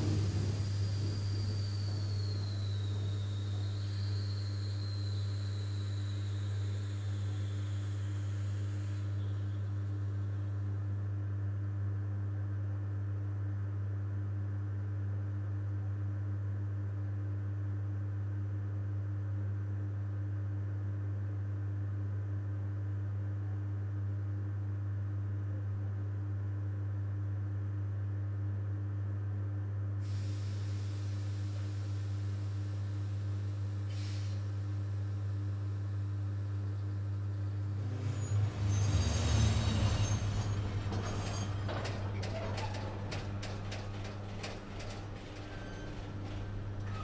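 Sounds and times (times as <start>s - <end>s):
hiss: 0.0s - 10.5s, 30.0s - 42.2s
transformer humming: 0.0s - 10.5s, 36.7s - 46.9s.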